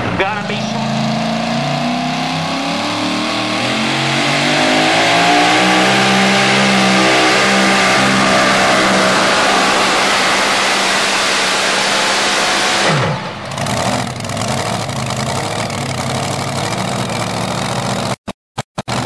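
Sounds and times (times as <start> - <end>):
truck engine running hard: 0.0 - 18.2.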